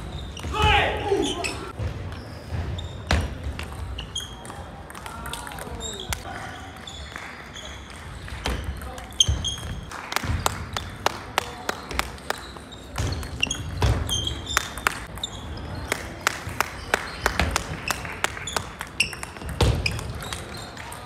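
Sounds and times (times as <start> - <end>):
shoes squeaking on wooden floor: 0.0 - 4.5, 8.4 - 9.9, 11.8 - 15.7.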